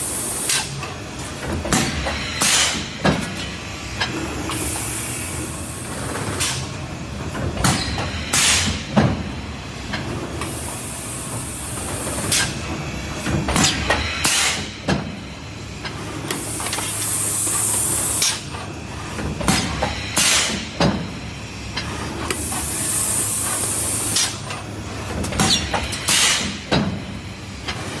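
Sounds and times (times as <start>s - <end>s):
mechanical clacks and knocks: 0.5s - 4.2s, 7.3s - 9.3s, 11.8s - 15.2s, 18.2s - 21.1s, 24.2s - 28.0s.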